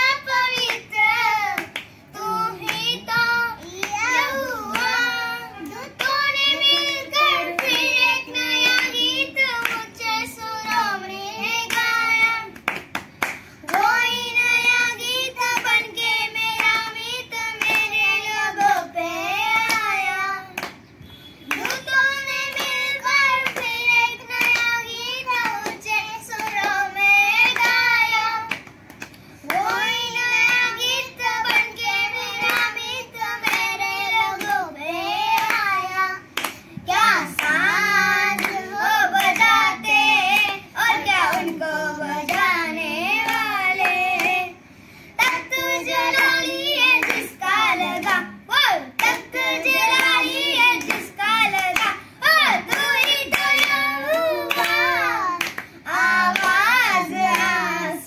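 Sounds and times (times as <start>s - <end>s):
boys singing: 0.0s - 12.6s, 29.4s - 58.0s
hands clapping: 0.5s - 1.0s, 1.6s - 1.9s, 2.6s - 3.0s, 3.6s - 10.0s, 11.6s - 15.9s, 17.6s - 18.0s, 20.6s - 20.8s, 21.5s - 26.8s, 27.4s - 34.6s, 35.4s - 41.6s, 42.2s - 42.5s, 43.2s - 44.4s, 45.2s - 48.3s, 49.0s - 55.7s, 56.3s - 57.6s.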